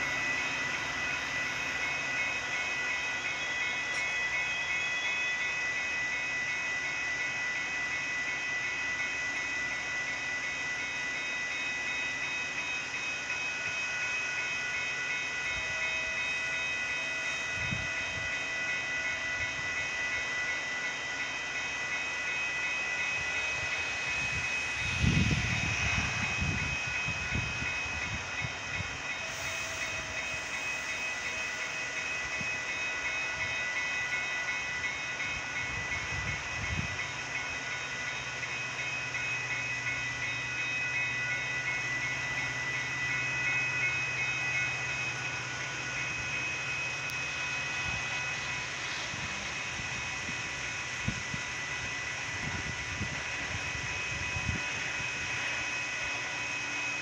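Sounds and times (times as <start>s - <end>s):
crossing warning bell ringing: 0.0s - 57.0s
train wheels rumbling and clacking: 0.0s - 57.0s.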